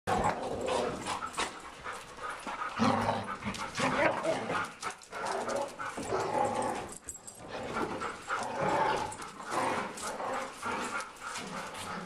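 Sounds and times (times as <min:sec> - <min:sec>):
dogs whining and barking: 0:00.1 - 0:12.0.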